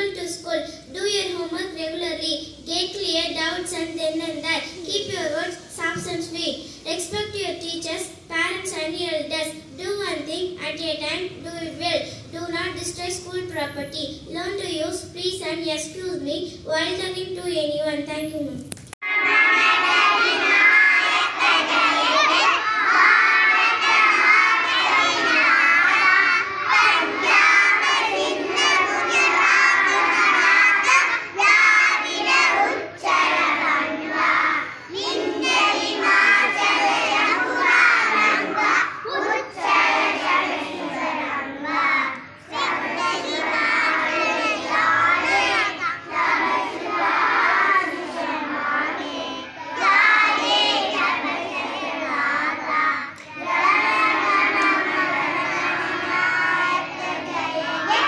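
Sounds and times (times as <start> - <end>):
children singing into microphone: 19.0 - 58.0.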